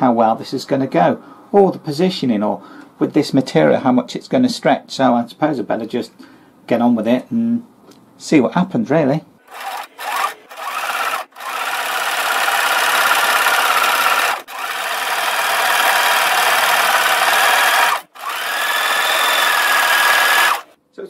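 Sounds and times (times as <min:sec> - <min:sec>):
sewing machine stitching: 0:09.4 - 0:20.7.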